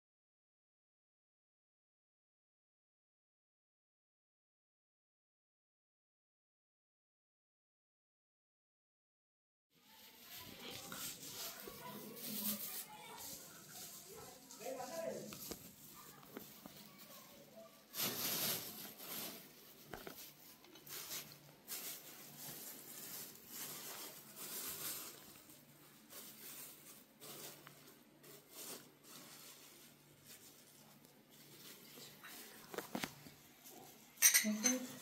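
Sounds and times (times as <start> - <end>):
plastic bags rustling and crinkling: 9.8 - 35.0.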